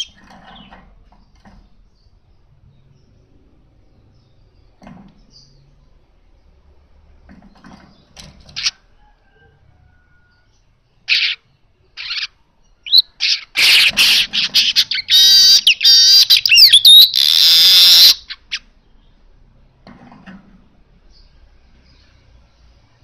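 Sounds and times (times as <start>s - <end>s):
bird chattering song: 0.0s - 3.3s, 11.0s - 19.3s
bird chirps: 0.0s - 6.0s, 10.0s - 19.3s.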